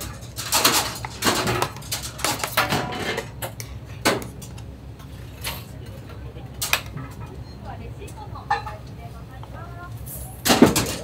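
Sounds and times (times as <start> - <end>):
metal irons and ladle clattering: 0.0 - 4.6
steady low hum: 0.0 - 11.0.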